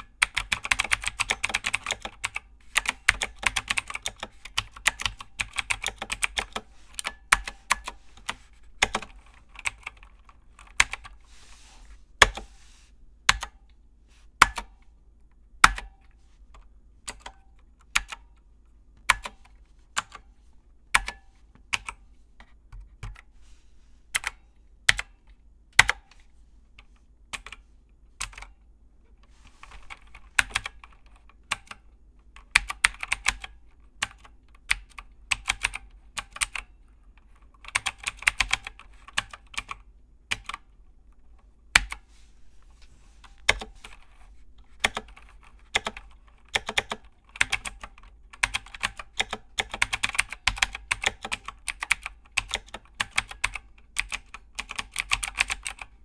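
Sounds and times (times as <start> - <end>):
typing on computer keyboard: 0.0 - 11.2, 17.0 - 18.4, 19.0 - 20.3, 21.0 - 22.0, 28.2 - 28.6, 29.7 - 40.7, 44.8 - 55.9.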